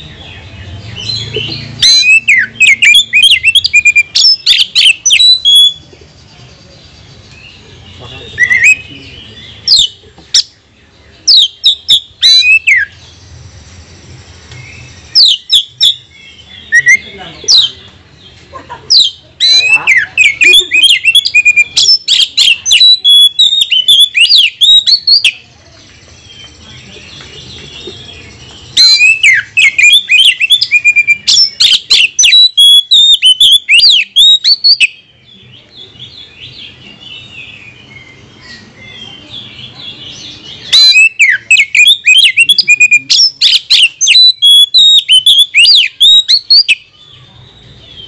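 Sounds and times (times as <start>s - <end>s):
quiet bird chirping: 0.0s - 48.0s
bird whistles and chatter: 0.9s - 5.9s, 8.0s - 10.5s, 11.2s - 13.0s, 18.9s - 35.1s, 36.0s - 48.0s.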